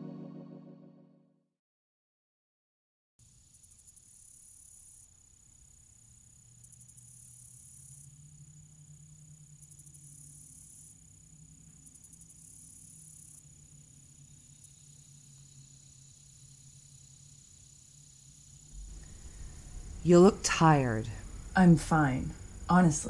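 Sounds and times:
insects singing high drone: 3.3s - 23.0s
rapid pulsing insect buzz: 3.3s - 23.0s
low steady hum: 18.7s - 23.0s.

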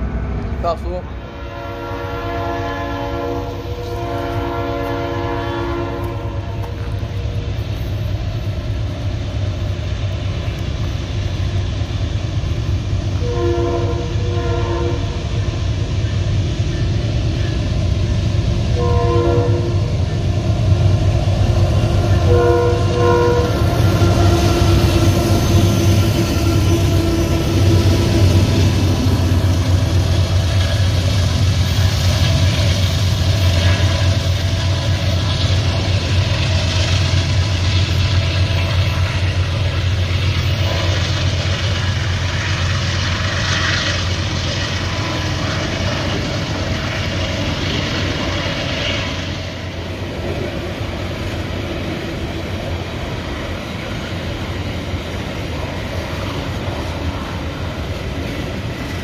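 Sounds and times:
locomotive engine rumble: 0.0s - 59.0s
locomotive horn blasts: 1.3s - 6.8s, 13.2s - 15.2s, 18.8s - 19.9s, 22.2s - 24.7s.

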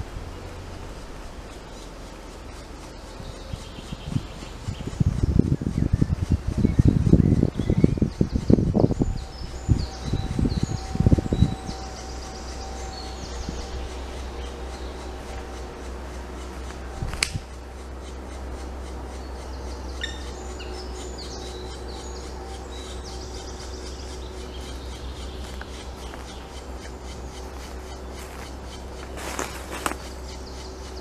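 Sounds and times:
nestlings buzzing begging calls: 0.0s - 31.0s
sharp click: 17.1s - 17.5s.

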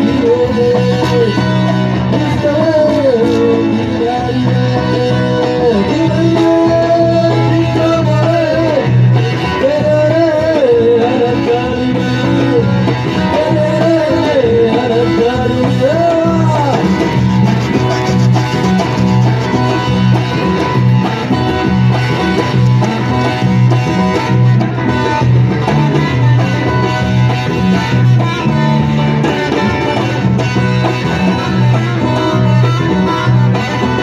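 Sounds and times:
person singing: 0.0s - 19.6s, 24.7s - 34.0s
plucked guitar: 0.0s - 34.0s
repeating bass beat: 15.9s - 32.6s.

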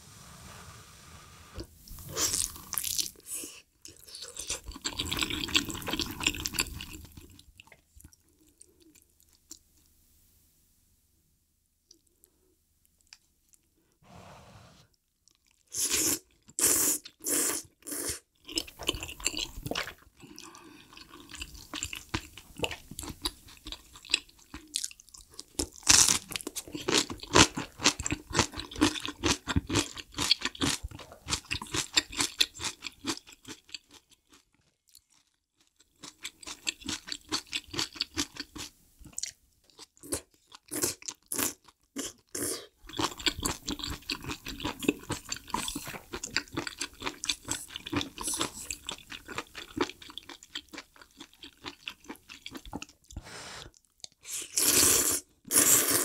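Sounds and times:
wet chewing with crunches: 42.8s - 54.2s
noodles slurped: 53.7s - 56.0s.

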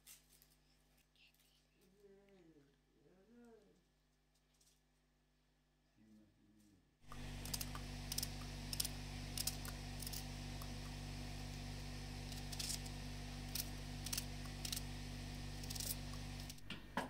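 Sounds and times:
steady low hum: 7.0s - 17.0s
knife cutting onion: 7.1s - 17.0s.

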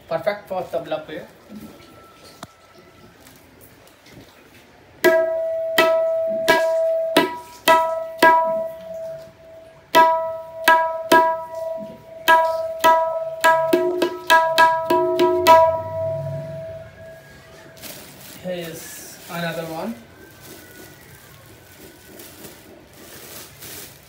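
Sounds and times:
hand drum strokes: 5.0s - 17.9s.

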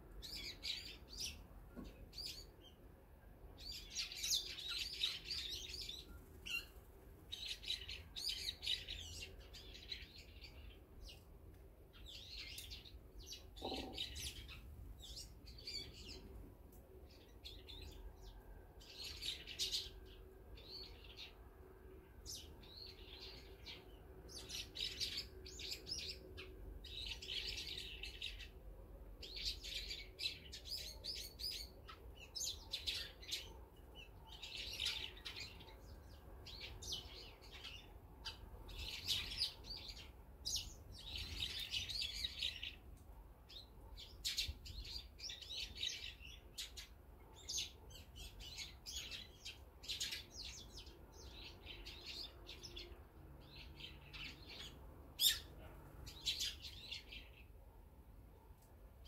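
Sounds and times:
songbirds chirping: 0.0s - 59.0s.

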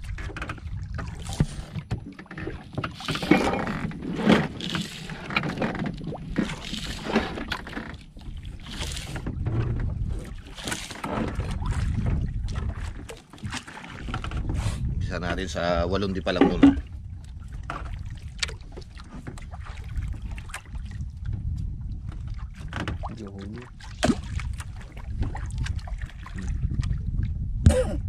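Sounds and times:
steady low rumble: 14.5s - 28.0s.

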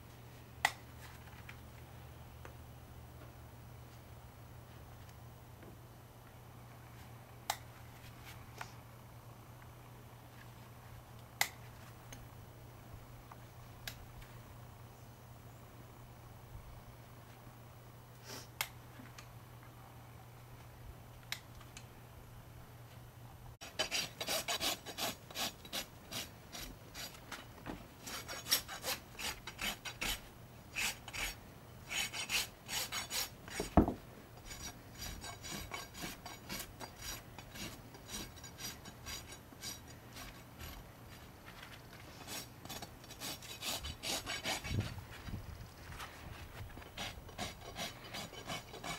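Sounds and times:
hoof rasp scraping: 23.6s - 33.8s, 34.4s - 45.3s, 46.0s - 48.9s.

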